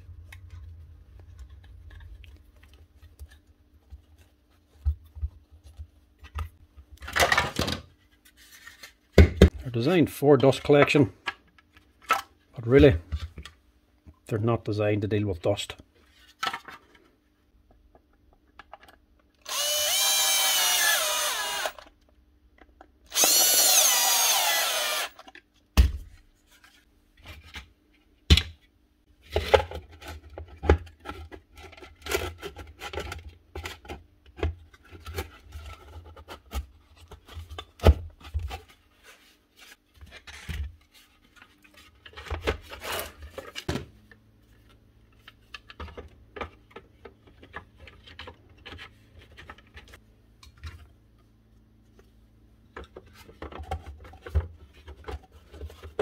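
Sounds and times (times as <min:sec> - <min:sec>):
cordless drill driving screws: 0:19.4 - 0:21.8, 0:23.1 - 0:25.2.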